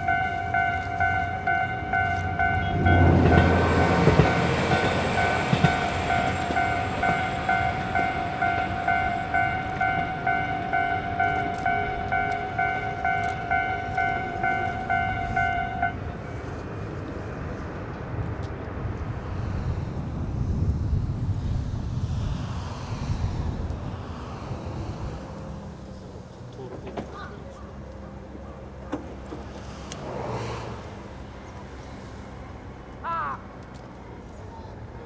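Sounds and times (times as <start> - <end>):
level crossing bell ringing: 0.0 - 16.0.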